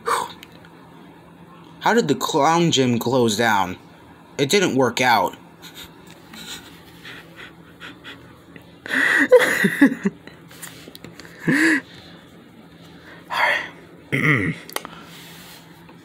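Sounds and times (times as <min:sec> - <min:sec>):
person laughing and gasping: 0:05.6 - 0:10.5, 0:11.2 - 0:11.9.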